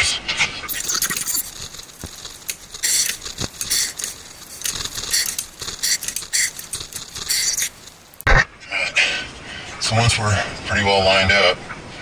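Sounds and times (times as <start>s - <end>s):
jack being pumped: 0.7s - 8.0s
sharp clicks: 0.7s - 8.3s.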